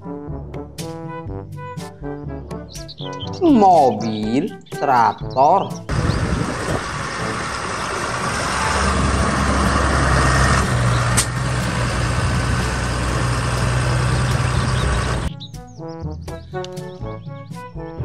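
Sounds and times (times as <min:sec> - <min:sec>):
tractor diesel engine running: 0:05.9 - 0:15.3.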